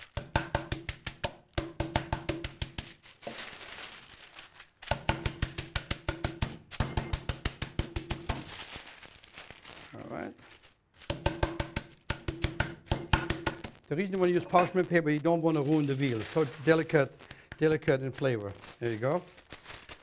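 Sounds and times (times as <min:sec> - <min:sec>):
parchment paper rustling: 0:00.0 - 0:01.2, 0:02.3 - 0:12.1, 0:13.2 - 0:20.0
meat pounding on wooden board: 0:00.2 - 0:02.8, 0:04.9 - 0:08.4, 0:11.1 - 0:13.8.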